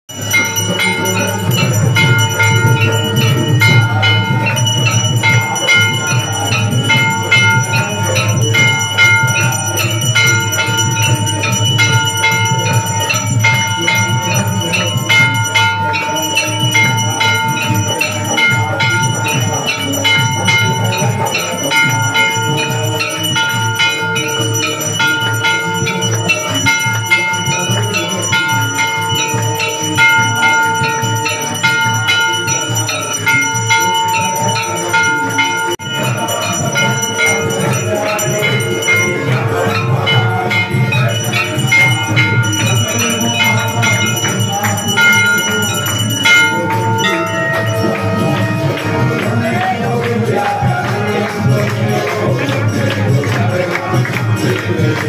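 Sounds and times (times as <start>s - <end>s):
temple bells clanging: 0.1s - 55.0s.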